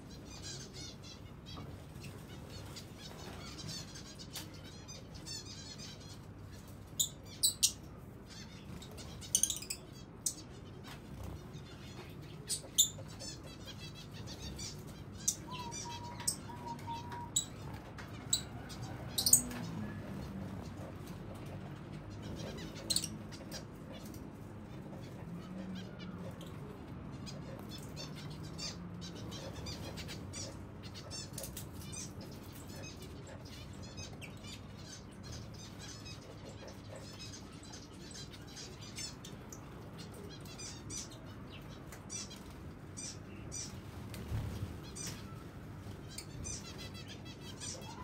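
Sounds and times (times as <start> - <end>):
finches chirping: 0.1 - 20.9
wings fluttering: 43.6 - 47.0.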